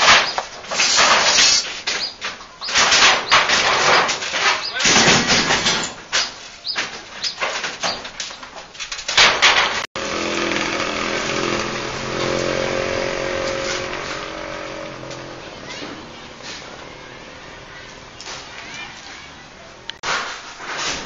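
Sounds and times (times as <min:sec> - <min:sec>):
knocks on metal roof sheeting: 0:00.0 - 0:14.2
engine humming: 0:10.0 - 0:20.0.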